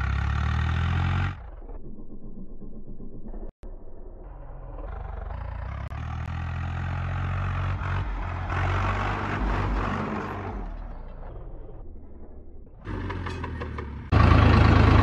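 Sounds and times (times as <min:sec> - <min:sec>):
tractor diesel engine passing: 0:04.9 - 0:10.8, 0:12.9 - 0:15.0.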